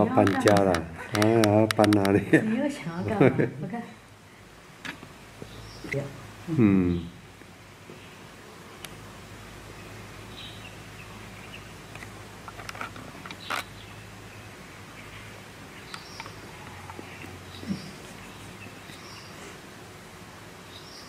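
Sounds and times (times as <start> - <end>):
faint crackles and clicks: 0.1 - 2.2, 11.9 - 13.8, 15.8 - 17.3.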